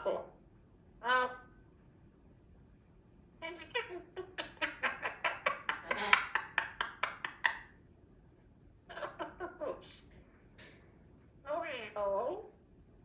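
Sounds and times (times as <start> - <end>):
parrot click-like calls: 3.6 - 7.7.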